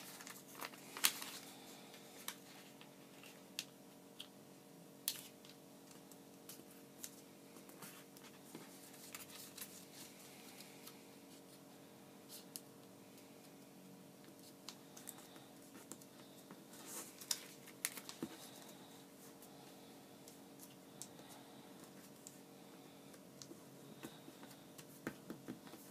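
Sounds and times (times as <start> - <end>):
paper crinkling while folded: 0.0 - 4.3, 5.1 - 10.7, 14.4 - 18.8
low room hum: 0.0 - 25.9.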